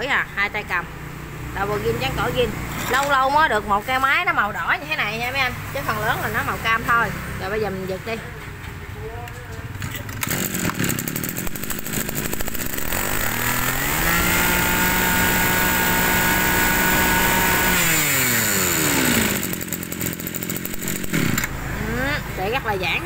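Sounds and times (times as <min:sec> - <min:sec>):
brush-cutter engine idling and revving: 0:00.6 - 0:03.6, 0:09.8 - 0:22.7.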